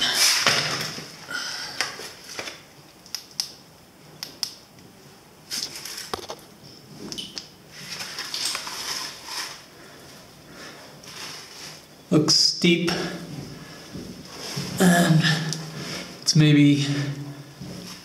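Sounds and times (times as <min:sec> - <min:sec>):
rustling and scraping on rock: 0:07.8 - 0:09.7.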